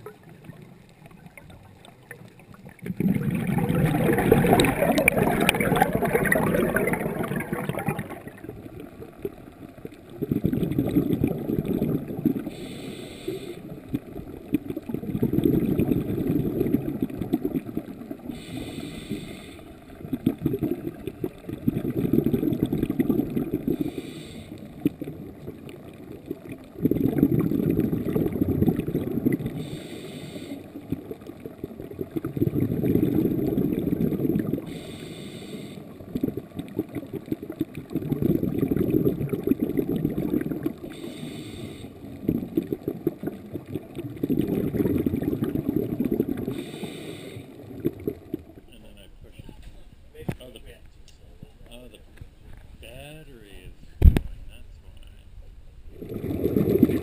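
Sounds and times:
exhaled bubbles gurgling: 0.0s - 49.5s, 55.8s - 57.0s
regulator inhalation hiss: 12.5s - 13.7s, 18.3s - 19.7s, 23.8s - 24.7s, 29.6s - 30.7s, 34.7s - 35.9s, 40.9s - 42.0s, 46.5s - 47.6s.

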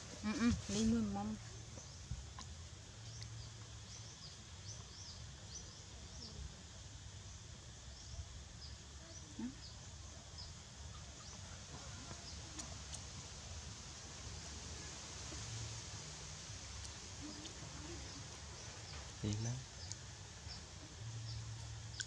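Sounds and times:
low steady rumble: 0.0s - 22.0s
small bird chirping: 1.5s - 6.4s.

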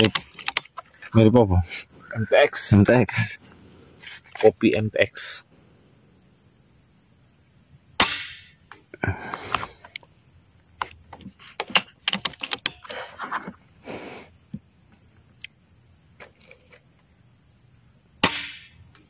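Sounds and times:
sharp metallic clicks: 0.0s - 1.0s, 11.6s - 12.8s.

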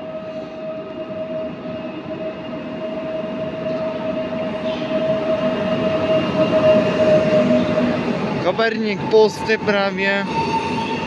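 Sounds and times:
electric train rumble: 0.0s - 11.0s.

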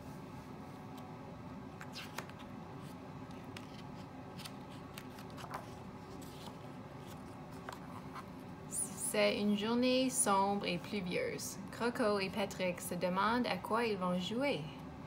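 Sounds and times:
faint room hum: 0.0s - 15.0s
paper rustling: 1.8s - 8.3s.

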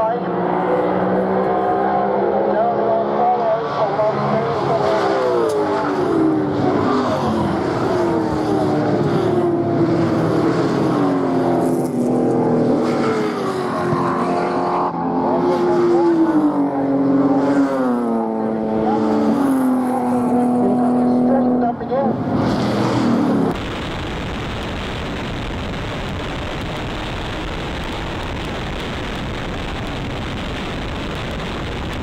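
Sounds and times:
racing cars passing: 0.0s - 23.6s.

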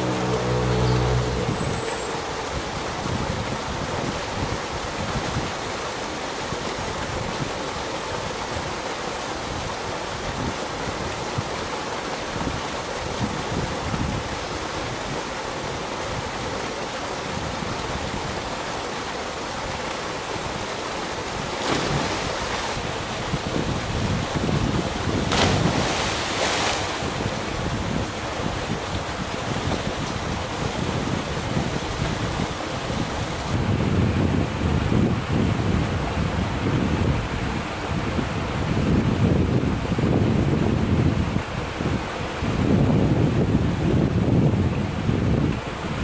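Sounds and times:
big splash into water: 21.4s - 23.0s, 24.0s - 27.4s
wind buffeting microphone: 21.8s - 46.0s.

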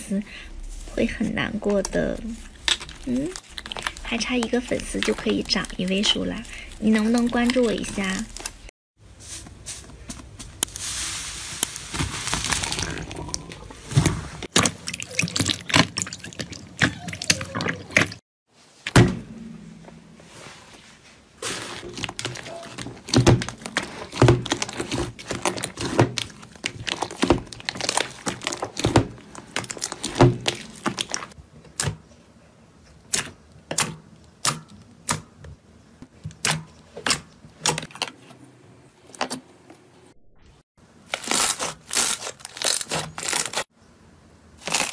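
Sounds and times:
slime squishing: 0.8s - 8.7s, 11.7s - 18.2s, 21.5s - 31.9s.

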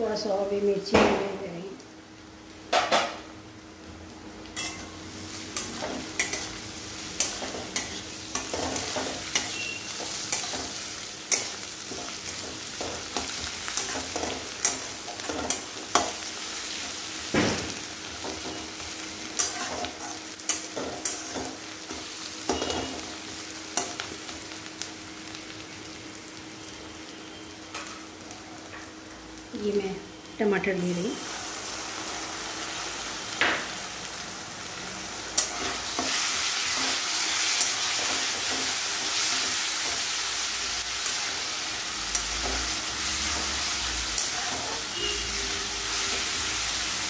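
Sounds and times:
vegetables sizzling in oil: 0.0s - 47.0s
metal spatula scraping a pan: 19.4s - 21.5s.

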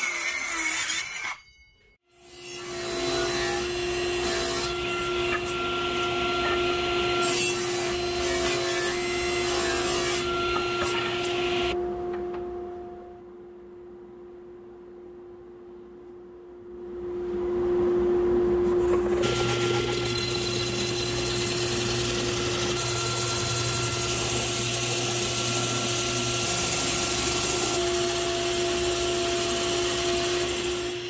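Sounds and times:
saw blade cutting wood: 2.2s - 11.8s, 18.8s - 31.0s
table saw running: 2.2s - 11.8s, 18.8s - 31.0s.

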